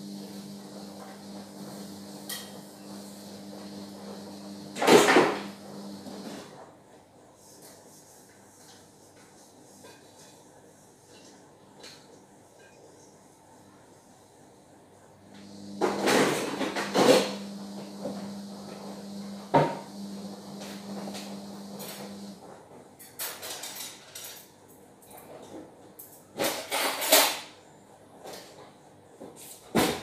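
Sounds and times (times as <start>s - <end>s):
steady low hum: 0.0s - 6.4s, 15.0s - 22.5s
dishes and pans clattering: 26.4s - 27.5s.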